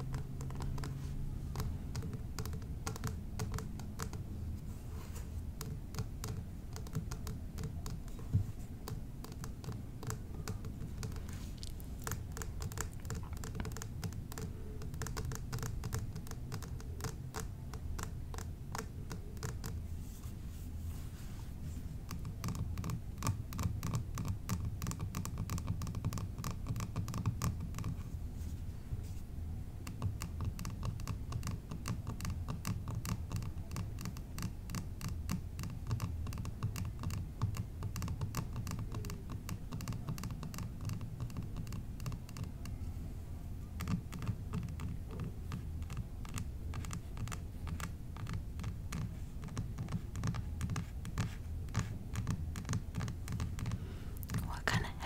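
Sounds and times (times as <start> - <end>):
low background hum: 0.0 - 55.0
tapping and scratching on bottles: 5.8 - 18.5.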